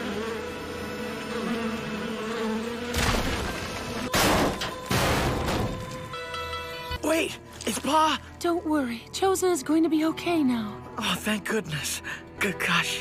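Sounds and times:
steady buzzing drone: 0:00.0 - 0:06.8.

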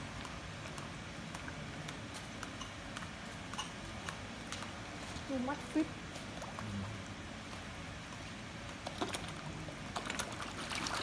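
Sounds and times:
fish splashing at water surface: 0:06.0 - 0:11.0
small sharp splashes: 0:08.7 - 0:11.0.

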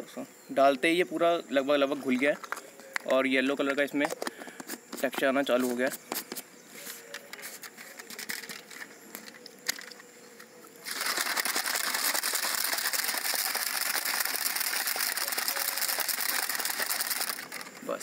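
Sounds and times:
liquid sloshing in shaker bottle: 0:10.9 - 0:17.6.

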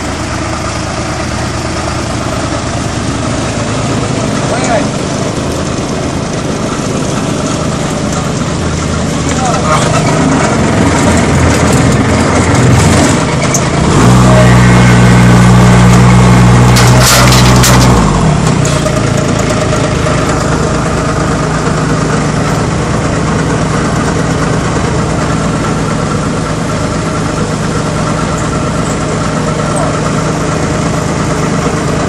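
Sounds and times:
small diesel engines running: 0:00.0 - 0:32.0
engine revving hard: 0:09.6 - 0:20.1.

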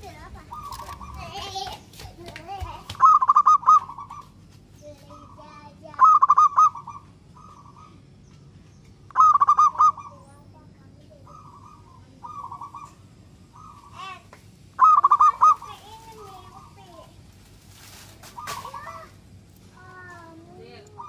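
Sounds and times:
dove cooing: 0:00.1 - 0:01.7, 0:03.0 - 0:04.4, 0:05.1 - 0:08.1, 0:09.1 - 0:16.9, 0:18.2 - 0:19.1.

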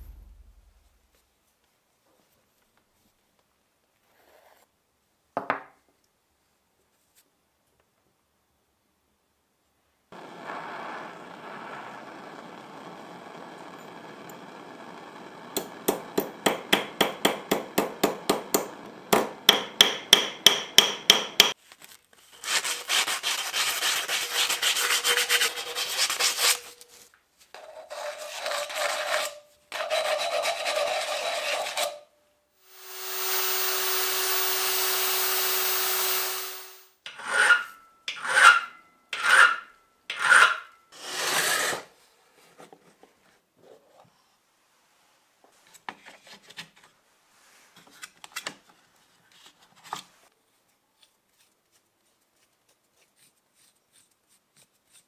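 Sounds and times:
hammer tapping metal rod: 0:15.6 - 0:21.6.

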